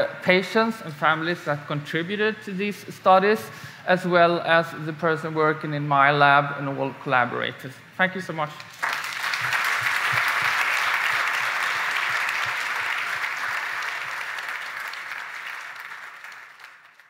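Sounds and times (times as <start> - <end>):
audience applauding: 8.7 - 17.0.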